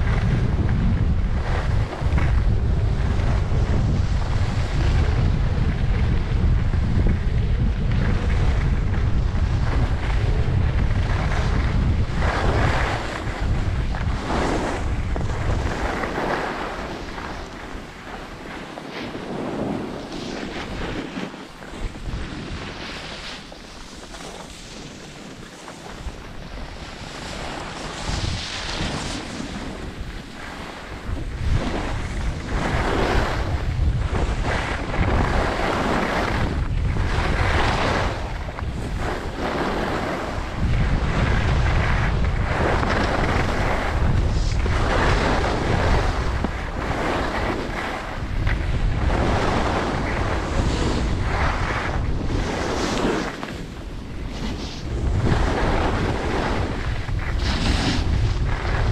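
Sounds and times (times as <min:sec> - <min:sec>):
skis scraping on snow: 0:00.0 - 0:58.9
wind rumbling on microphone: 0:00.0 - 0:58.9.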